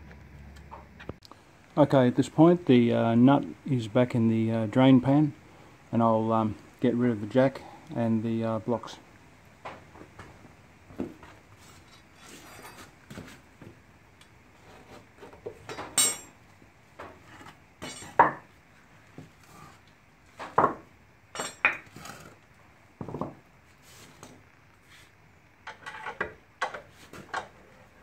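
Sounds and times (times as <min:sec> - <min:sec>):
metal tools clinking: 0:15.7 - 0:16.4, 0:21.3 - 0:21.8
wooden blocks knocking on concrete: 0:23.0 - 0:23.4.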